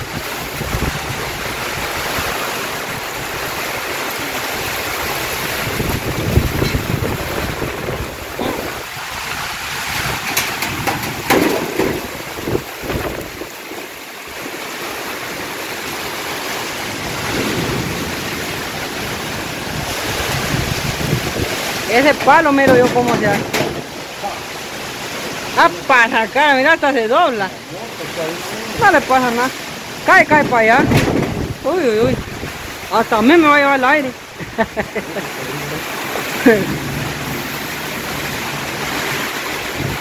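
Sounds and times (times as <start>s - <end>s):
wind buffeting microphone: 0.0s - 13.6s, 16.9s - 24.2s, 29.8s - 34.7s, 35.9s - 40.0s
heavy rain: 0.0s - 40.0s
strong wind gusting through trees: 0.0s - 40.0s.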